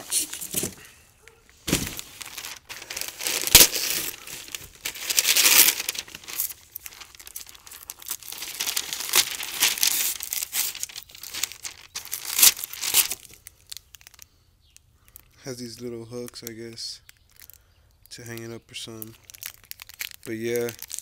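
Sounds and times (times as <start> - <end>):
paper crinkling and tearing: 1.6 - 14.2, 18.9 - 21.0.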